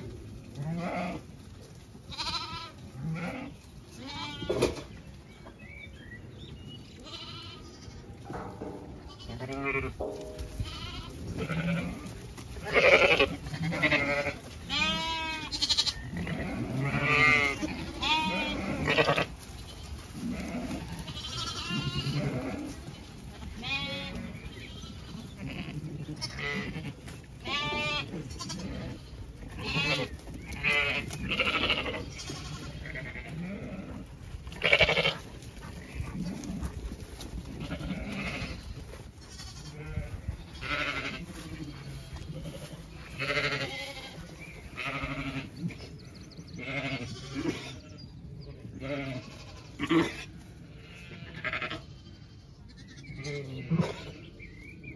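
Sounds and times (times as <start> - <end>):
sheep bleating: 0.6 - 1.2, 2.1 - 4.7, 7.0 - 8.1, 9.0 - 19.4, 20.1 - 35.2, 37.5 - 45.6, 46.6 - 48.1, 48.8 - 54.3.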